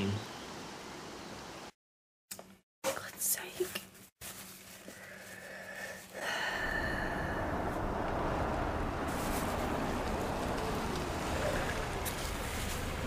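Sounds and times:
car engine running: 6.7 - 13.0.

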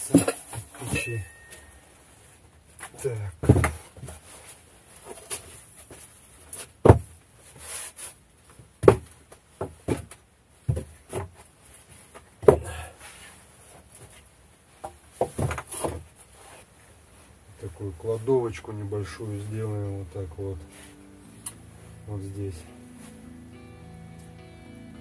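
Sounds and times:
tools and boards knocking on floor: 3.4 - 3.8.

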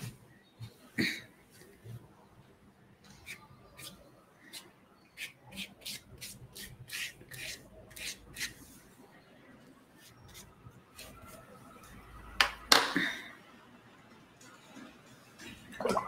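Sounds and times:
dry brush scratching paper: 5.2 - 8.8.

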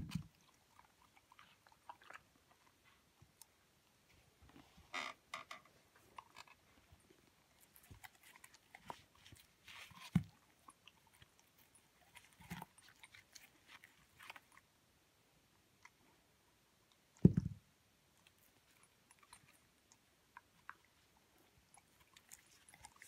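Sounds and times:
dog chewing apple: 0.0 - 3.5, 6.0 - 14.6, 18.3 - 23.0.

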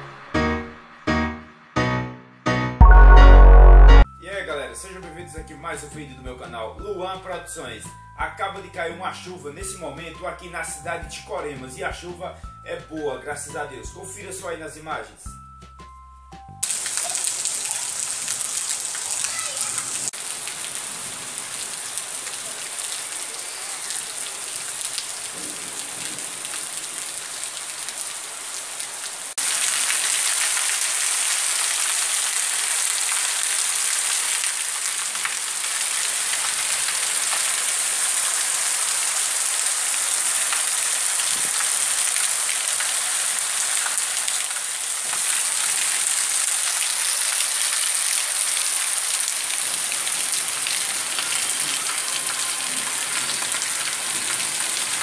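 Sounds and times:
heavy rain falling: 16.6 - 55.0.

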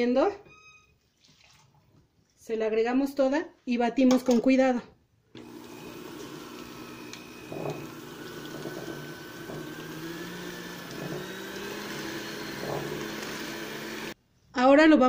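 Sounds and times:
electric hand mixer whirring: 5.4 - 14.2.

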